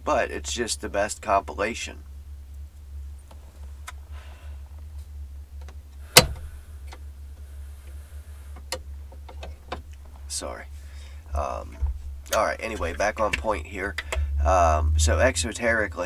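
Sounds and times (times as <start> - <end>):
steady low hum: 0.0 - 16.0
faint rustling: 2.6 - 14.1
handling clicks and knocks: 5.6 - 7.4, 8.5 - 10.2, 11.7 - 14.2.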